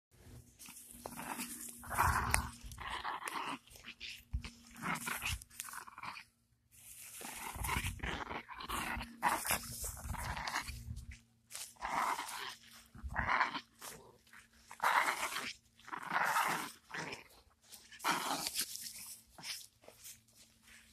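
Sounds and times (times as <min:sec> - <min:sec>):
small dog growling: 0:00.6 - 0:06.3, 0:07.1 - 0:19.7
steps on grass: 0:06.7 - 0:08.1, 0:08.8 - 0:15.9, 0:16.7 - 0:20.9.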